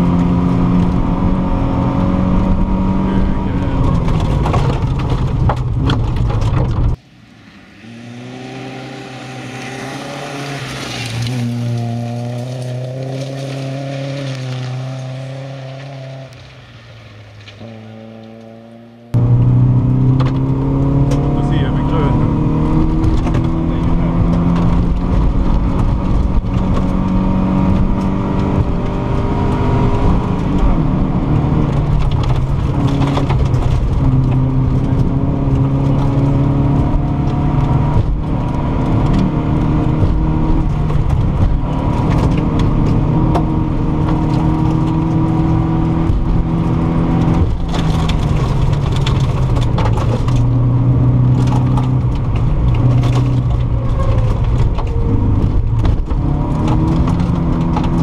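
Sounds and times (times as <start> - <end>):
rally car engine from cabin: 0.0 - 7.0, 17.6 - 58.0.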